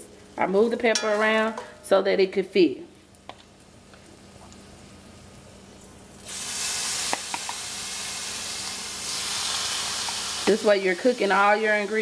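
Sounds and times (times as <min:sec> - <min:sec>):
shrimp sizzling in skillet: 0:03.1 - 0:12.0.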